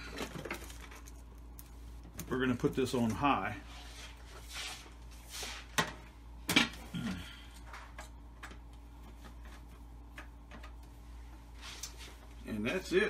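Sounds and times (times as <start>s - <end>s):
steady low hum: 0.0s - 13.0s
soft brushing sounds: 1.6s - 5.8s, 8.8s - 13.0s.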